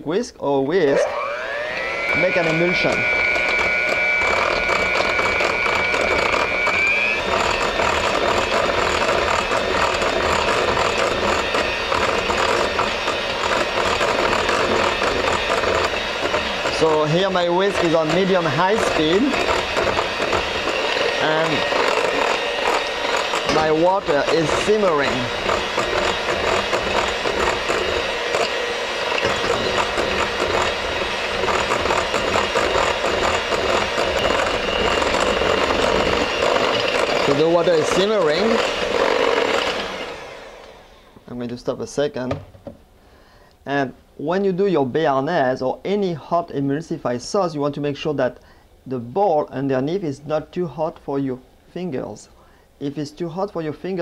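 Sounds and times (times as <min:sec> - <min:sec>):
electric hand mixer whirring: 0:00.7 - 0:41.3.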